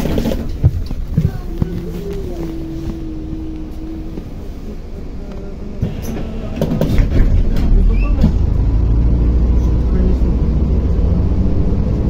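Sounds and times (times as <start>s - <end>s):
bus engine and road rumble: 0.0s - 12.0s
steady hum: 0.5s - 6.8s
knocks and rattles: 5.8s - 8.6s.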